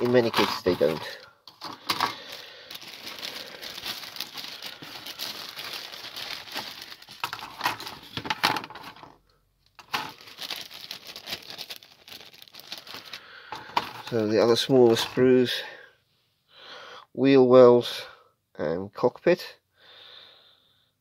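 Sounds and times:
plastic sprues clicking and clattering: 0:00.0 - 0:14.3
plastic bag crinkling: 0:00.0 - 0:15.3.

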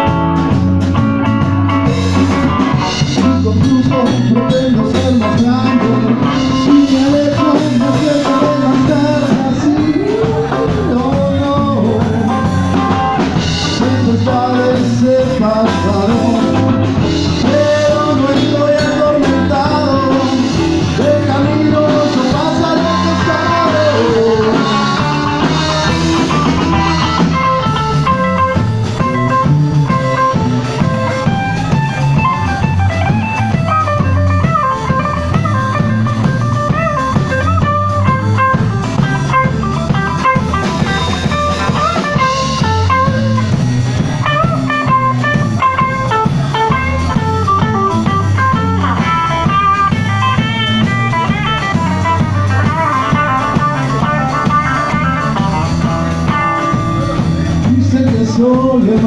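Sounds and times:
drum kit: 0:00.0 - 0:59.0
electric guitar: 0:00.0 - 0:59.0
person singing: 0:02.8 - 0:28.6, 0:49.2 - 0:59.0.

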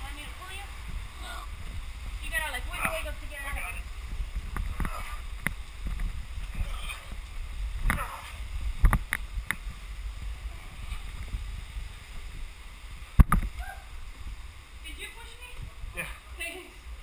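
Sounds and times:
low rumble of rubbing: 0:00.0 - 0:16.0
scraping against cave rock: 0:04.3 - 0:09.8.

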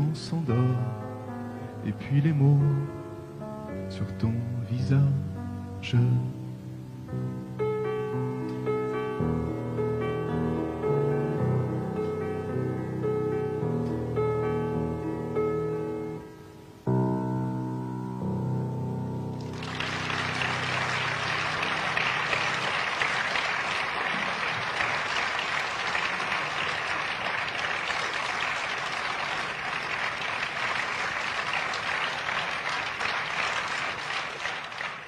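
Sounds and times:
audience applauding: 0:19.4 - 0:35.0.

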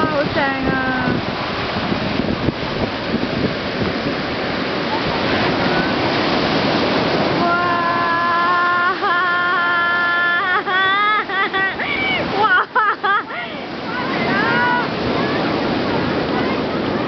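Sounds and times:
big sea waves breaking: 0:00.0 - 0:17.0
person calling in high voice: 0:07.4 - 0:11.0.

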